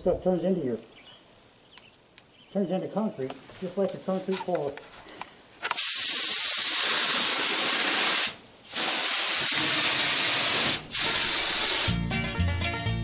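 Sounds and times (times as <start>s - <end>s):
spray gun hissing: 5.7s - 12.0s
music: 11.6s - 13.0s.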